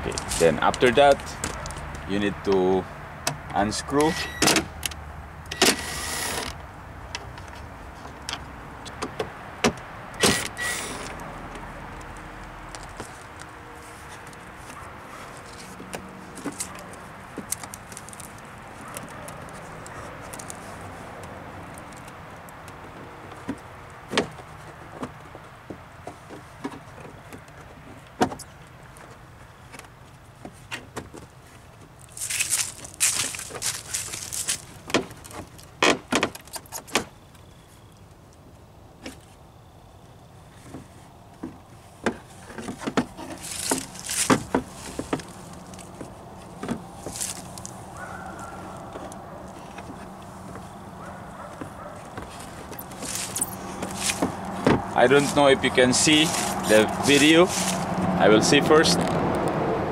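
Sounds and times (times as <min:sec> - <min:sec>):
rustling: 0:30.4 - 0:35.8, 0:40.5 - 0:58.0.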